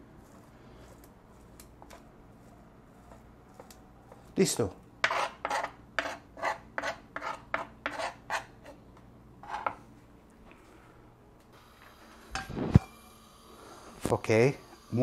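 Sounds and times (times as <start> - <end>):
knife scraping cutting board: 0.2 - 4.4, 5.0 - 8.8, 9.4 - 9.8.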